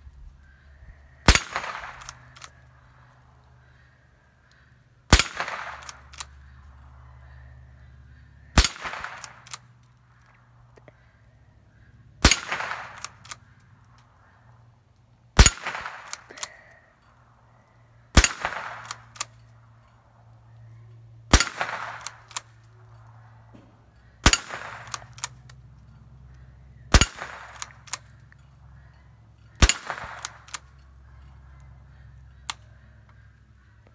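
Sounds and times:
rifle shots: 0:01.2 - 0:02.6, 0:05.1 - 0:06.5, 0:08.6 - 0:09.8, 0:12.2 - 0:13.5, 0:15.4 - 0:16.4, 0:18.1 - 0:19.3, 0:21.3 - 0:22.6, 0:23.6 - 0:25.4, 0:26.9 - 0:28.1, 0:29.6 - 0:30.7.

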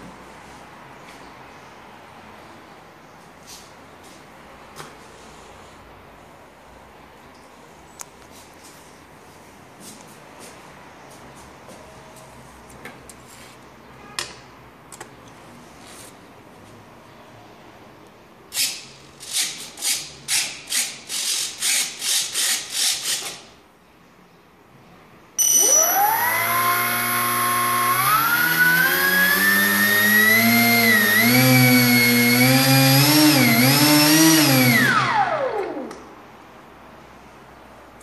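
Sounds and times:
electric motor propeller whine: 0:25.6 - 0:35.9.

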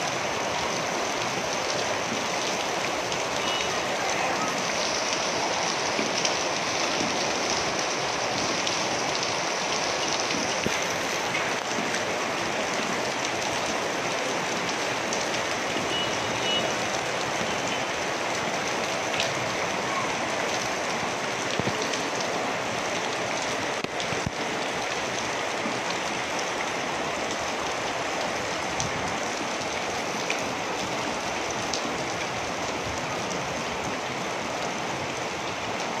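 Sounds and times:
heavy rain falling: 0:00.0 - 0:36.0.

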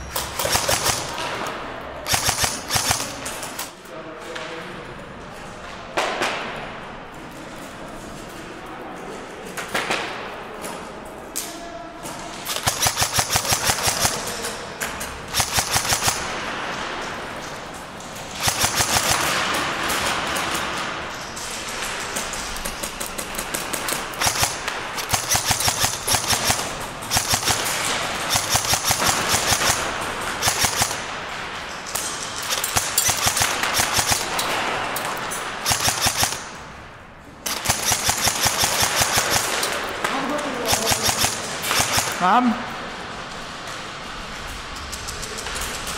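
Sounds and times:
airsoft guns firing bursts: 0:00.0 - 0:03.7, 0:12.4 - 0:14.6, 0:15.3 - 0:16.9, 0:18.3 - 0:20.9, 0:22.7 - 0:34.9, 0:35.5 - 0:36.6, 0:37.5 - 0:42.4.

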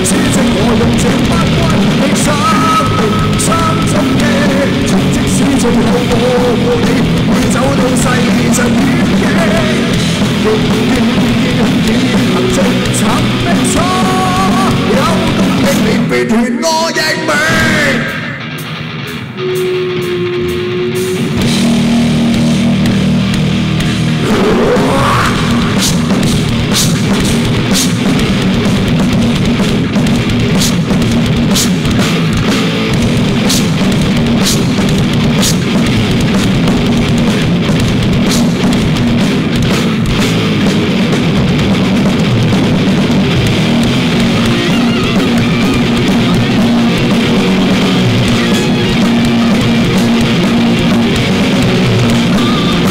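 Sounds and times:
rock band playing: 0:00.0 - 0:52.9.

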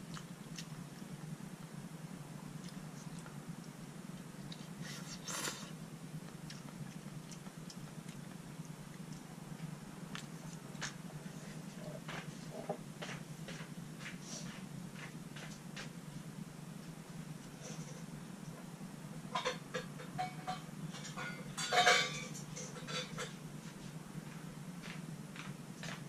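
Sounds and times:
steady low hum: 0:00.0 - 0:26.0
chewing: 0:00.1 - 0:01.4, 0:02.6 - 0:12.8.

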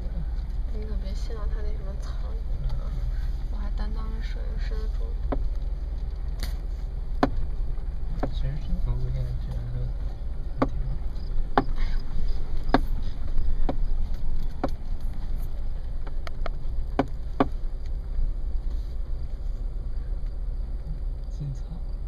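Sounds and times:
vehicle rumble on dirt trail: 0:00.0 - 0:22.0
knocks and rattles in cab: 0:03.5 - 0:18.3.

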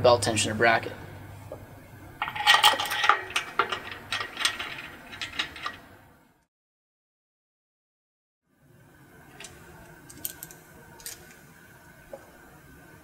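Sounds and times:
metal bolt and washer clinking: 0:02.2 - 0:06.0.

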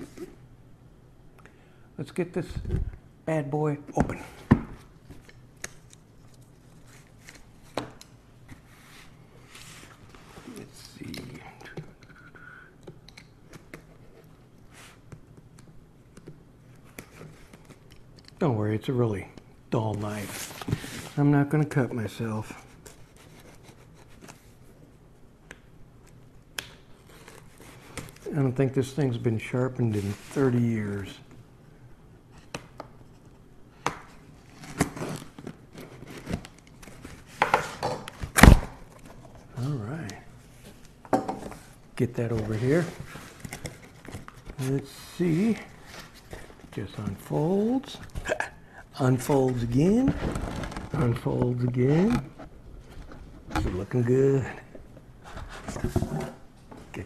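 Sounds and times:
tape crinkling and tearing: 0:50.1 - 0:51.2.

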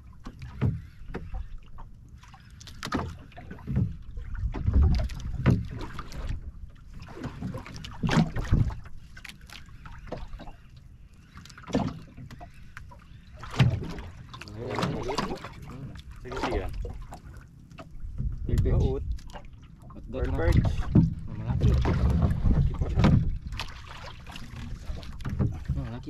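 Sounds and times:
water splashing against boat hull: 0:00.0 - 0:26.0
wind buffeting microphone: 0:17.9 - 0:19.3, 0:20.0 - 0:23.6.

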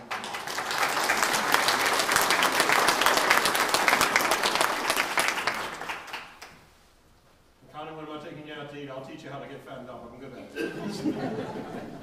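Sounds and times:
congregation applauding: 0:00.0 - 0:06.7.

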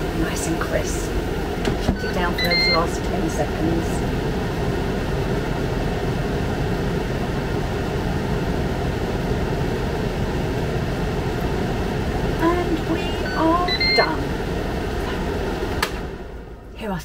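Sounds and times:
air fryer fan humming: 0:00.0 - 0:17.0.

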